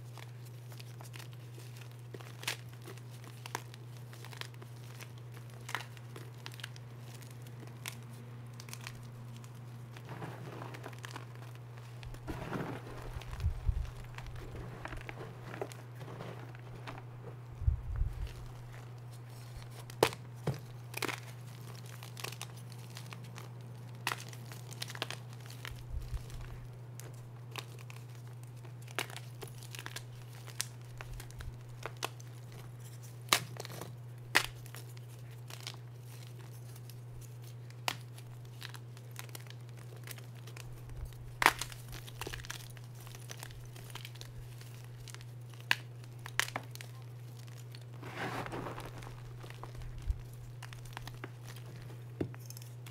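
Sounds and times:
steady low hum: 0.0s - 52.9s
chalk crunching by hand: 47.5s - 52.0s.

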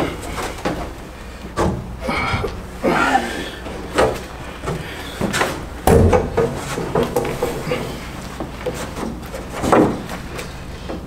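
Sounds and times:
hollow knocks of fiberglass panel: 3.9s - 7.8s.

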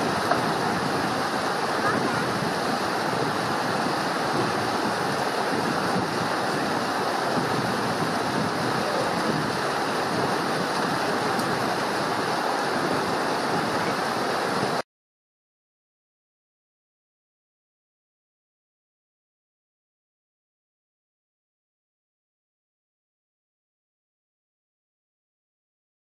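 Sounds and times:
stream rushing over rocks: 0.0s - 14.8s.

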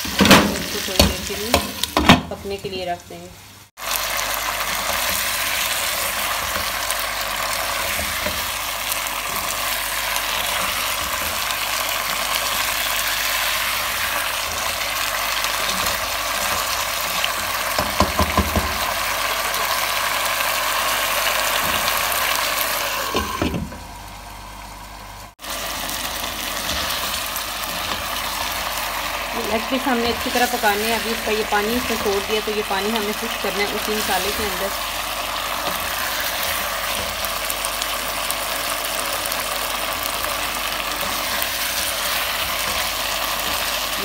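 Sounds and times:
chicken sizzling in oil: 0.0s - 44.0s
knocks on pot: 17.8s - 18.8s.

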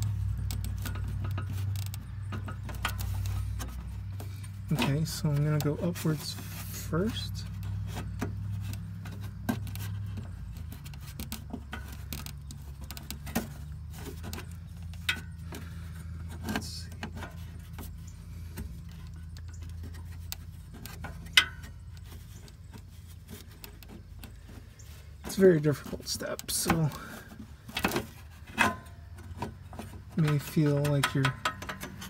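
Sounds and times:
light metallic clicks and taps: 0.0s - 5.8s, 28.6s - 32.0s.

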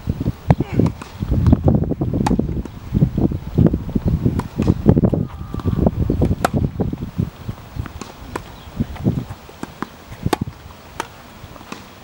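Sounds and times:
wind buffeting microphone: 0.0s - 11.6s
tennis ball struck by racket: 0.8s - 1.5s, 2.2s - 2.8s, 4.3s - 6.8s, 7.8s - 12.0s.

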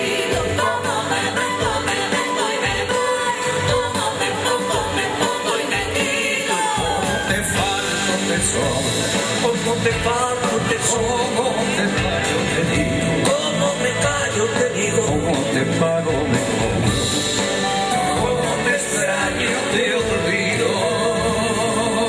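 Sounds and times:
percussion: 0.0s - 22.0s
man singing: 5.1s - 22.0s.

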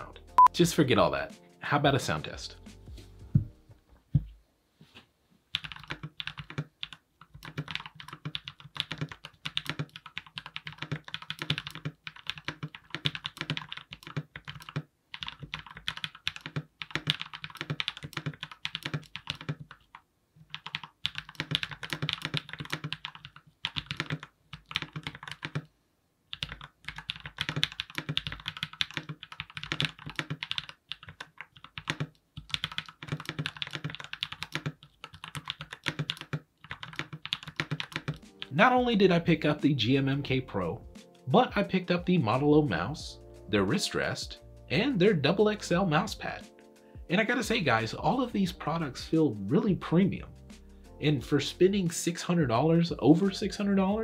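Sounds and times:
mechanical keyboard typing: 5.5s - 25.7s, 26.3s - 38.5s.

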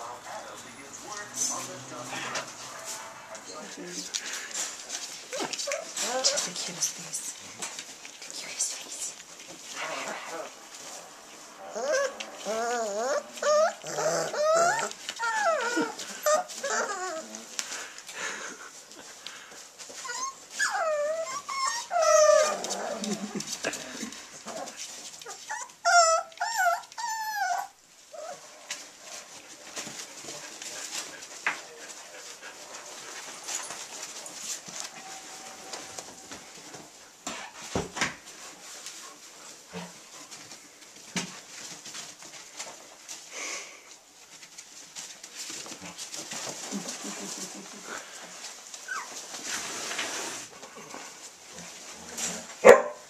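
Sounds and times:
puppies scuffling on pads: 0.0s - 53.0s
puppies whining: 5.2s - 6.5s, 11.7s - 17.6s, 19.9s - 23.4s, 24.4s - 28.4s, 48.8s - 49.3s.

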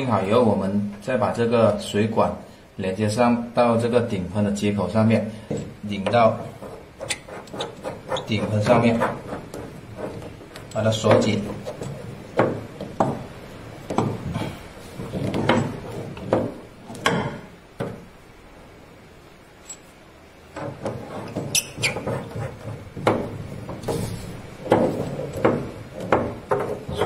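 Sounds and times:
metal parts clicking and scraping: 19.6s - 20.0s.

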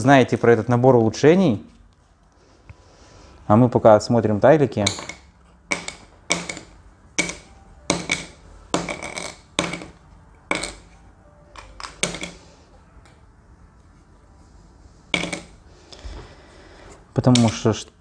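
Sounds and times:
game tiles tapping on table: 4.9s - 10.9s, 15.2s - 15.5s.

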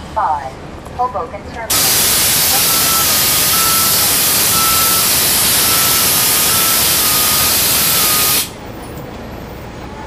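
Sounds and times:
compressed air hissing: 1.7s - 8.6s.

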